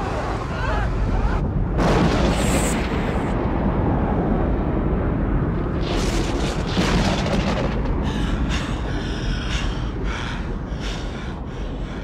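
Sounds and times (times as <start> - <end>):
low rumble: 0.0 - 12.0
dense crackling: 5.7 - 8.4.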